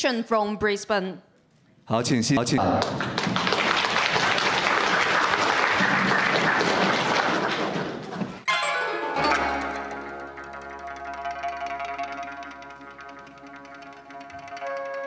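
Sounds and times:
audience applauding: 0:02.6 - 0:08.4, 0:09.2 - 0:15.0
instrumental ensemble notes: 0:08.4 - 0:15.0.

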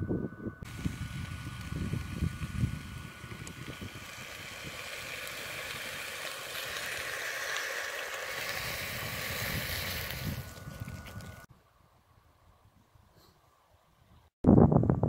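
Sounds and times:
beer pouring and fizzing: 0:00.7 - 0:11.5.

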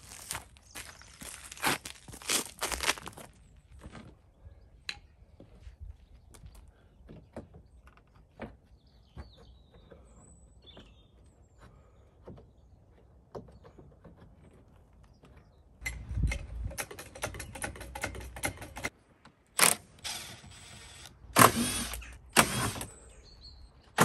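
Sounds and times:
plastic bumper rattling and clicking: 0:15.8 - 0:18.9.

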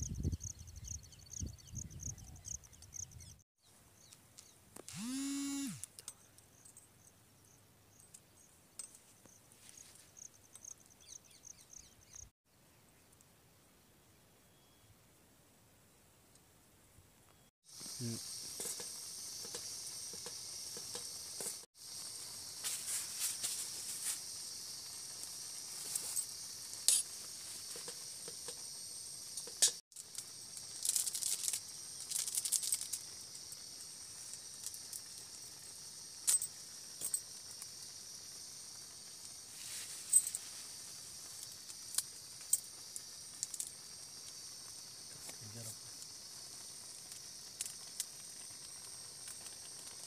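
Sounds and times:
stove burner hissing: 0:17.7 - 0:32.0.

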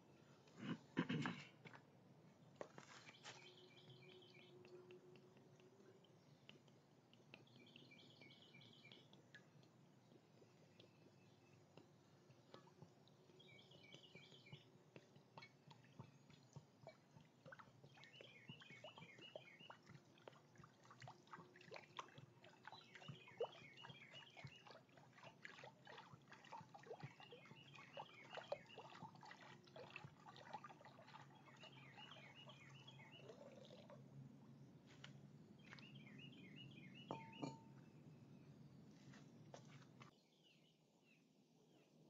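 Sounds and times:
water pouring into birdbath: 0:12.2 - 0:34.1
bird singing rapid notes: 0:15.4 - 0:20.0, 0:22.4 - 0:25.3, 0:26.4 - 0:29.4, 0:31.0 - 0:33.9, 0:35.6 - 0:37.6.

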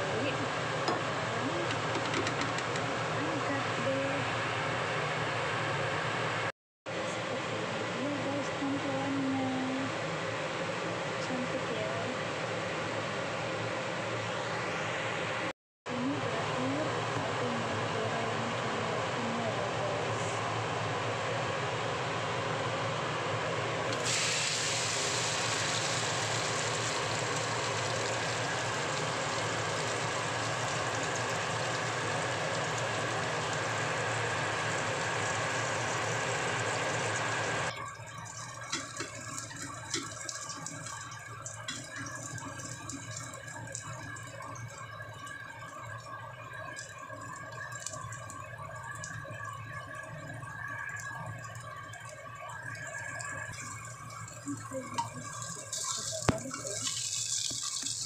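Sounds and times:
hot oil sizzling in a wok: 0:23.9 - 0:37.7, 0:54.4 - 0:58.0.

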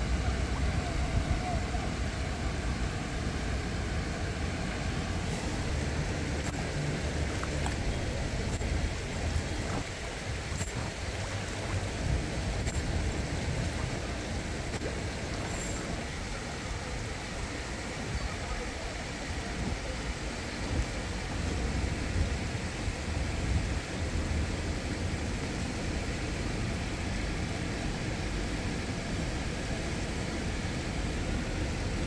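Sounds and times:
even hiss: 0:00.0 - 0:32.0.

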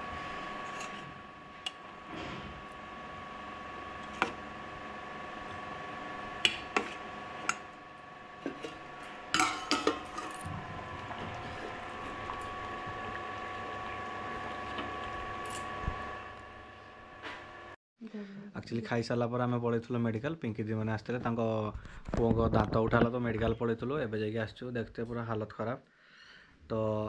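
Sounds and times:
steady background hum: 0:00.0 - 0:17.8.

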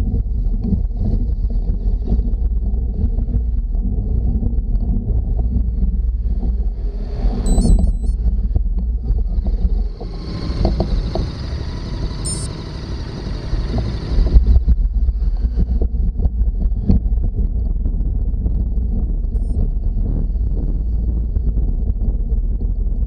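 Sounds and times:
wind buffeting microphone: 0:08.1 - 0:23.0.

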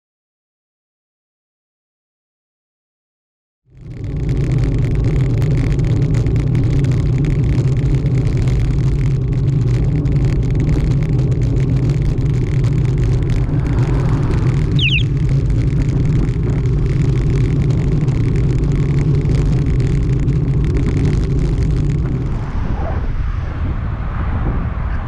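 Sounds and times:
road rumble: 0:03.7 - 0:25.0
wind noise: 0:03.8 - 0:25.0
van passing: 0:10.5 - 0:25.0.

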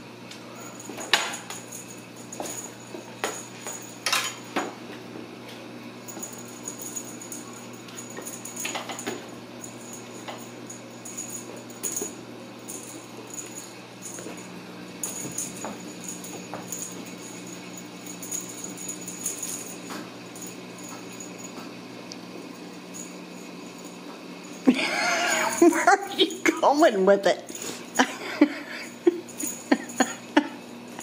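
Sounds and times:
small bell jingling: 0:00.6 - 0:04.5, 0:06.1 - 0:21.6, 0:22.7 - 0:31.0
low hum: 0:06.0 - 0:26.4.

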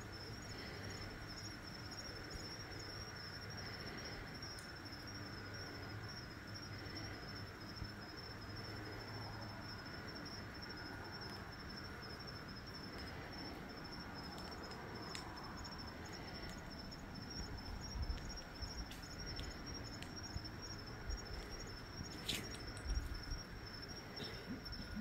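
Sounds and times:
crickets chirping: 0:00.0 - 0:25.0
faint clicks: 0:14.3 - 0:15.3.

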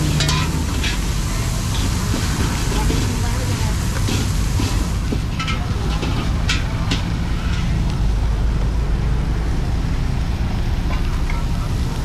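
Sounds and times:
steady low rumble: 0:00.0 - 0:12.0
metal spatula clinking on wok: 0:00.2 - 0:01.0.

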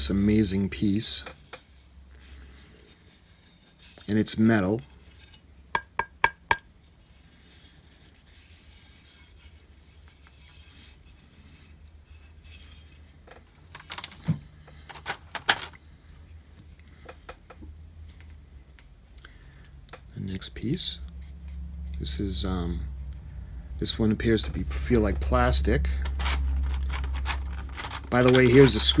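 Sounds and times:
faint rubbing: 0:01.4 - 0:05.6, 0:06.8 - 0:13.2
clicks and knocks of parts: 0:12.7 - 0:15.9, 0:25.9 - 0:29.0.

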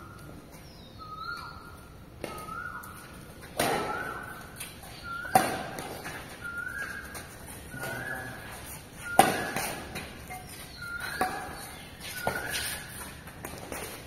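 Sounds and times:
racket smacking shuttlecock: 0:03.4 - 0:08.0, 0:08.6 - 0:14.0.

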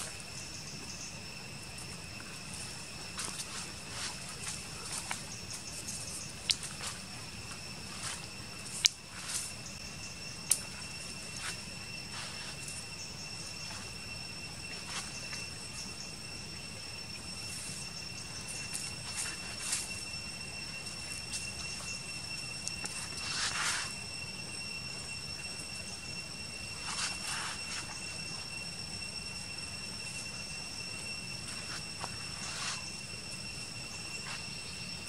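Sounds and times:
insect trilling: 0:00.0 - 0:35.0.

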